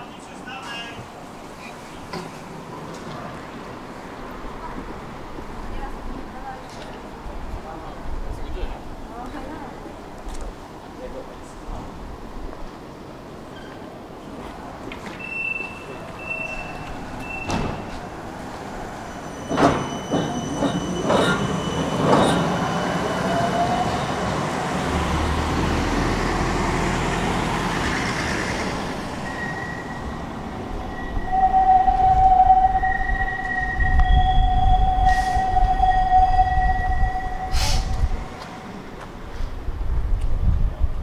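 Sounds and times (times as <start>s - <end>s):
high-pitched wheel squeal: 29.2s - 38.7s
rising whine: 29.2s - 39.0s
short high beeps: 30.8s - 38.3s.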